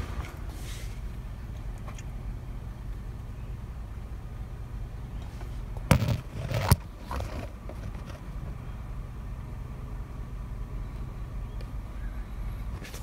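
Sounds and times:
car engine idling: 0.0s - 13.0s
sharp knocks with scraping clatter: 5.2s - 8.3s.

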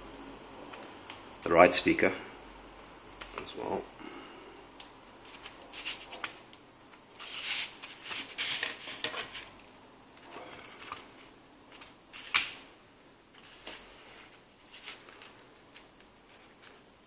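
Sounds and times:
scraping and rustling: 5.2s - 9.6s, 13.3s - 17.0s.

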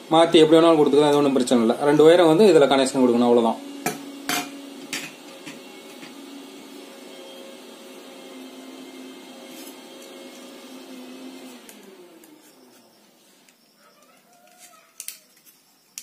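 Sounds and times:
wires clicking: 13.4s - 16.0s.

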